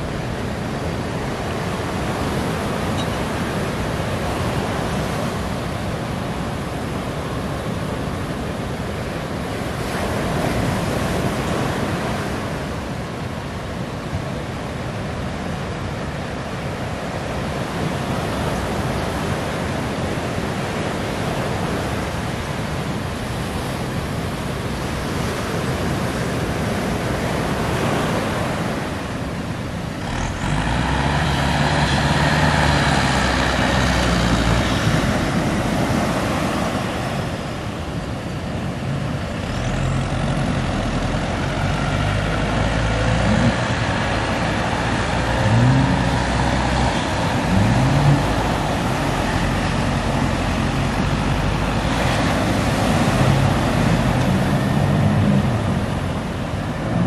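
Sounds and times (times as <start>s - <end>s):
boat engines droning: 0.0s - 57.0s
surf washing in: 0.0s - 57.0s
outboard motors revving: 29.9s - 37.4s, 39.3s - 57.0s.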